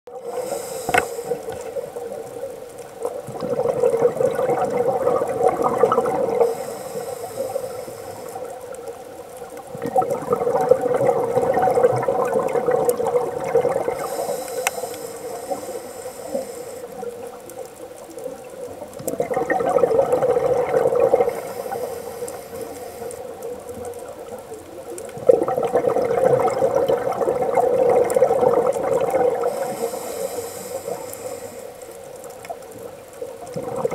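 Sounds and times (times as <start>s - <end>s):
bubbling exhaled air underwater: 0.1s - 33.9s
regulator inhale hiss: 0.2s - 2.0s, 6.2s - 8.9s, 13.9s - 17.1s, 21.2s - 23.5s, 29.4s - 32.4s.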